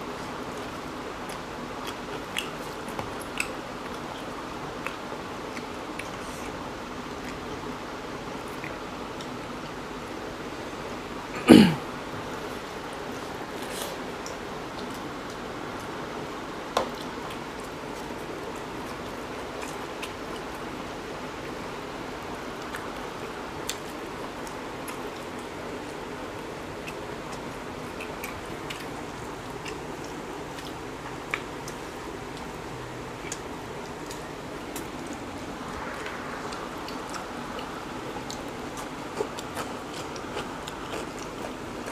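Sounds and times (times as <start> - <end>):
background noise: 0.0 - 41.9
faint eating clicks: 0.1 - 10.1, 12.4 - 41.9
chewing: 0.4 - 7.6, 8.3 - 9.8, 16.8 - 20.7, 22.5 - 41.9
person making throat noise: 11.3 - 11.8.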